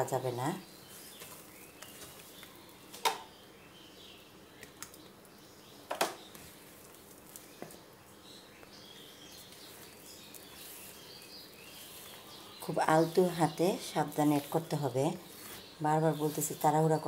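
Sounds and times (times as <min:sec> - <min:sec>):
spatula stirring batter: 0:00.8 - 0:02.5, 0:09.3 - 0:16.8.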